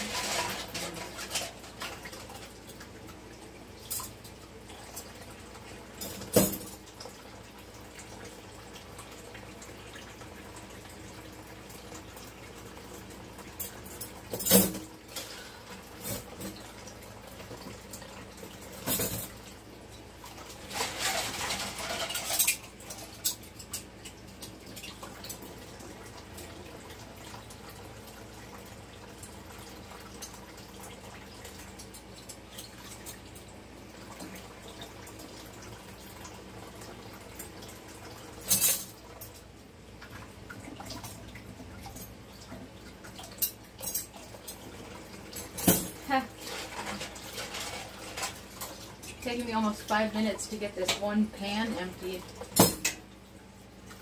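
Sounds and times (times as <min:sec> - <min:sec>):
running water: 0:00.0 - 0:54.0
dishes and cutlery clinking: 0:20.7 - 0:23.9.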